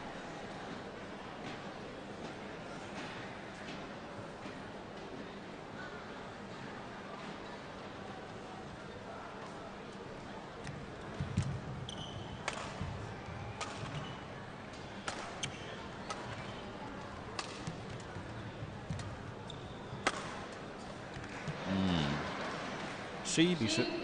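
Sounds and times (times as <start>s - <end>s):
shoe squeaks on court: 11.8s - 12.4s, 19.4s - 20.0s
rackets striking shuttlecock: 12.4s - 13.0s, 15.0s - 16.5s, 20.0s - 20.5s
crowd murmur: 12.4s - 24.0s.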